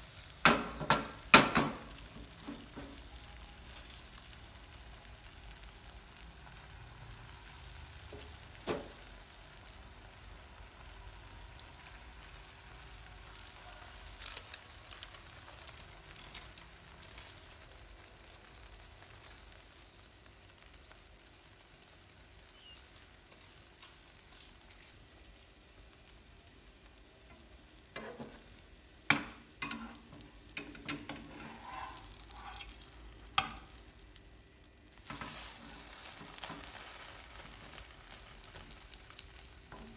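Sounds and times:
egg sizzling in pan: 0.0s - 39.9s
spatula knocking and scraping: 29.1s - 33.7s
utensils tapping pan: 29.1s - 33.8s.

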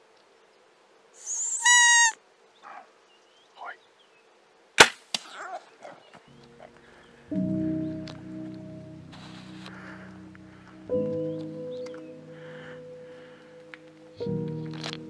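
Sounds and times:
short high-pitched call: 1.2s - 2.2s
bow shot crack: 4.8s - 5.4s
music: 6.3s - 15.0s.

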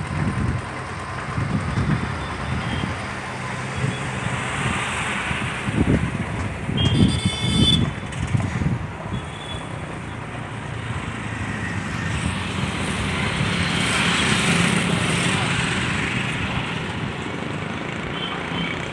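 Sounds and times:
vehicle engines running: 0.0s - 18.9s
vehicles passing: 0.0s - 18.9s.

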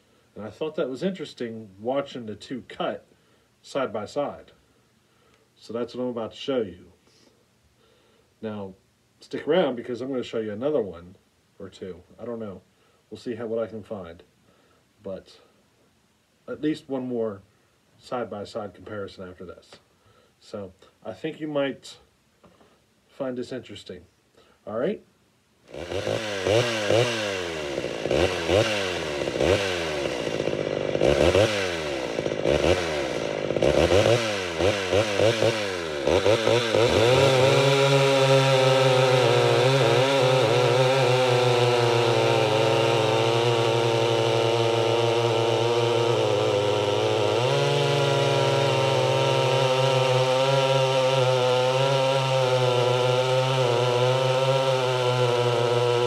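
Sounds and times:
chainsaw revving and cutting: 25.7s - 56.0s.

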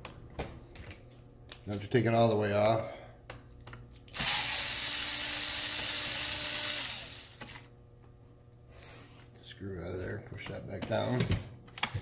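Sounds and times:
electric screwdriver running: 4.2s - 7.7s.

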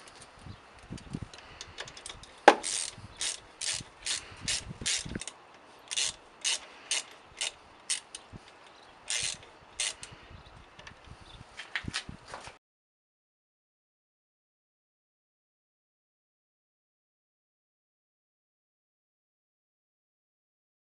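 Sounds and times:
socket ratchet clicking: 1.6s - 10.1s.

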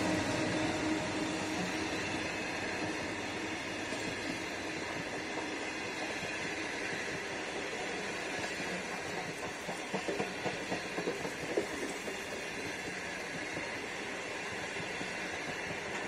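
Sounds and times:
train carriages rumbling past: 0.0s - 16.0s
wheels clicking and clacking: 7.0s - 13.7s.

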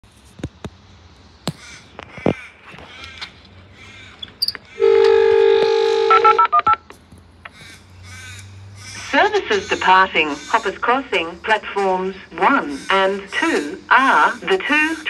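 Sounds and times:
two-note electronic tone: 4.8s - 6.4s.

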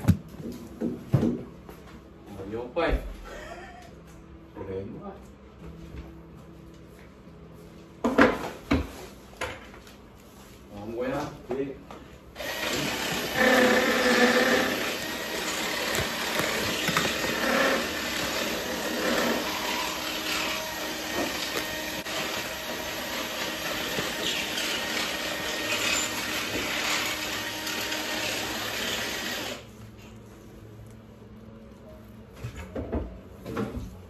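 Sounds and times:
electric drill boring into wall: 12.4s - 29.7s.

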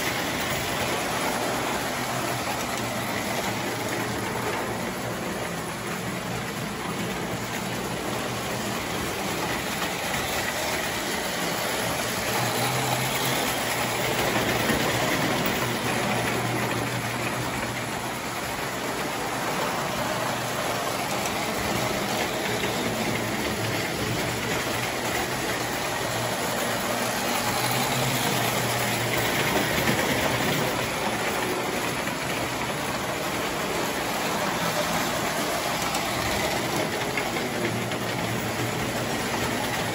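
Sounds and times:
toy train motors whirring and rattling: 0.0s - 39.9s.

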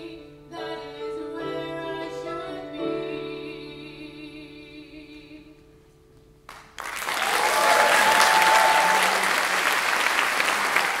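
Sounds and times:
audience applauding: 6.5s - 11.0s.

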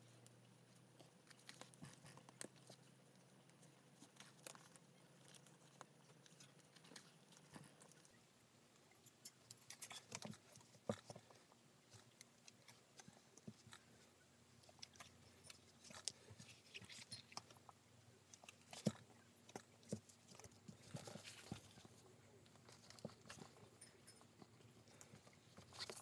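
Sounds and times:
leather stitching clicks and rustles: 9.0s - 26.0s.

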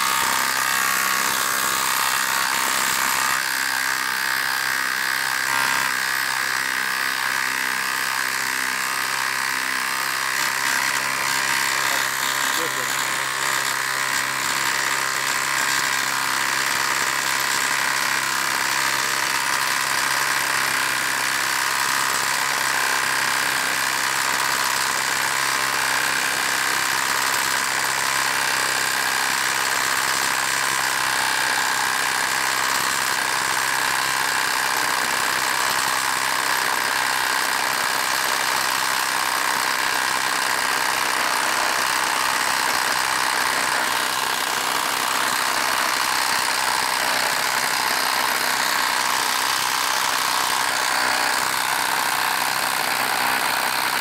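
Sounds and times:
impact driver hammering: 0.0s - 54.0s.

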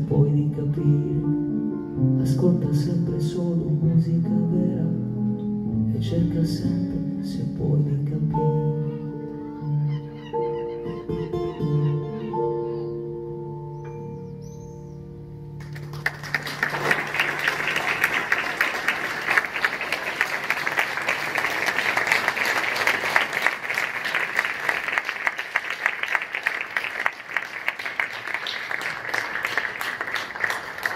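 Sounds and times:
audience applauding: 15.6s - 30.9s.

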